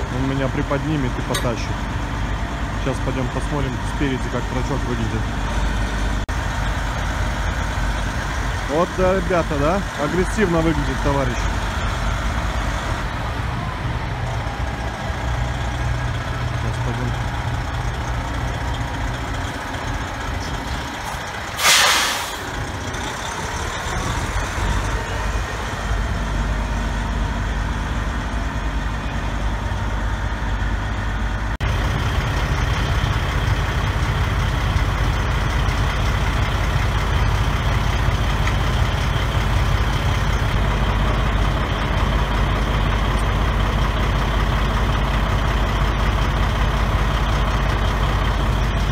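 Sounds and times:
diesel engine idling: 0.0 - 48.9
air brake release hiss: 21.6 - 22.5.

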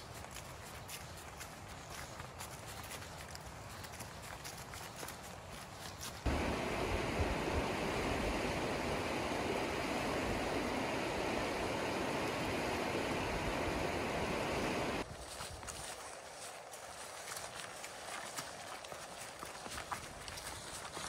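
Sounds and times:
river rushing over stones: 6.3 - 15.0.

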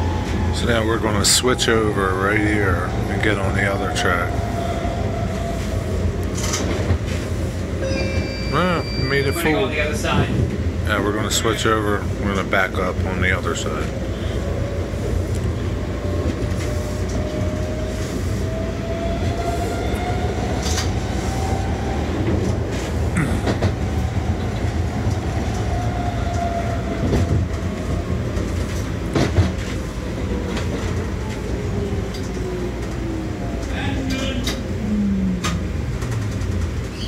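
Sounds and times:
rail car rumbling: 0.0 - 37.0
wheels clicking over rail joints: 35.4 - 37.0.

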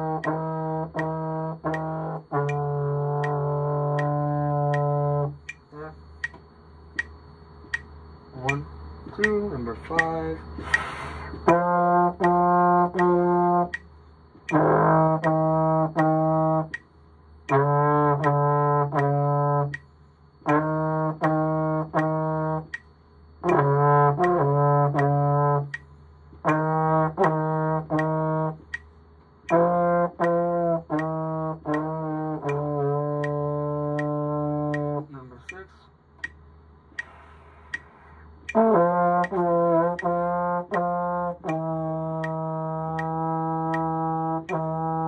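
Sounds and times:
trombone playing phrases: 0.0 - 6.0, 11.3 - 13.8, 14.4 - 16.8, 17.5 - 19.8, 20.4 - 22.8, 23.4 - 25.8, 26.4 - 28.8, 29.5 - 35.6, 38.5 - 45.0
metronome clicking: 0.0 - 16.9, 17.5 - 19.9, 20.5 - 36.4, 37.0 - 45.0.

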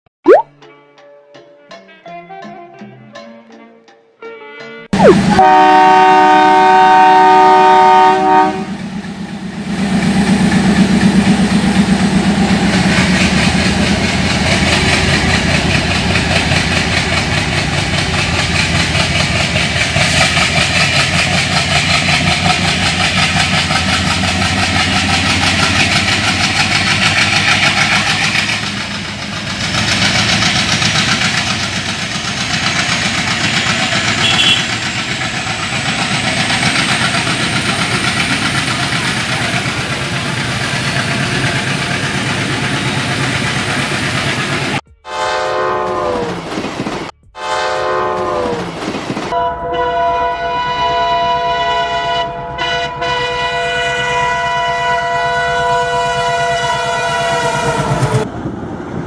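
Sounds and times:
electronic train horn: 5.0 - 8.8, 34.1 - 34.9, 44.8 - 46.4, 47.3 - 48.6, 49.3 - 58.3.

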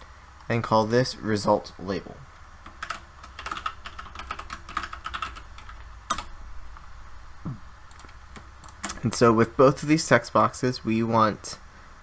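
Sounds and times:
typing on computer keyboard: 2.6 - 6.3, 7.9 - 9.0.

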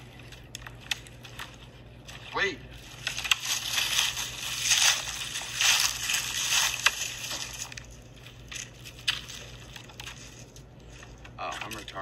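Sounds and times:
footsteps crunching on gravel: 1.9 - 11.2.

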